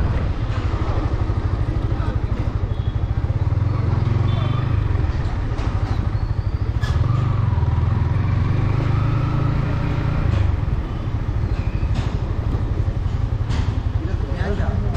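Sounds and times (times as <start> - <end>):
motorcycle engine running at low revs: 0.0 - 14.9.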